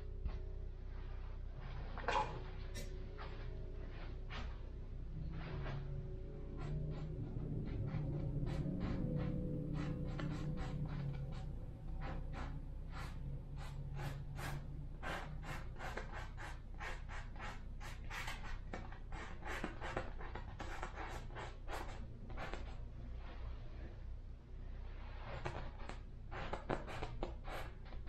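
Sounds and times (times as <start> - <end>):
low steady hum: 0.0 - 28.0
paintbrush scrubbing canvas: 5.3 - 23.6, 24.9 - 28.0.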